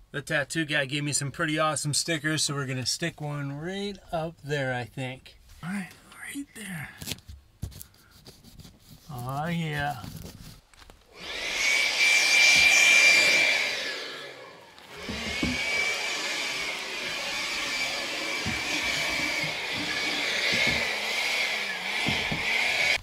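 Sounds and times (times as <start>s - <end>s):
handheld air blower whining: 11.1s - 23.0s.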